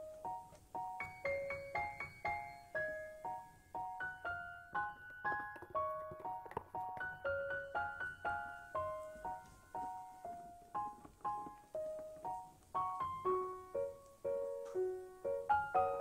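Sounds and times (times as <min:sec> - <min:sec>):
gentle piano melody: 0:00.0 - 0:16.0.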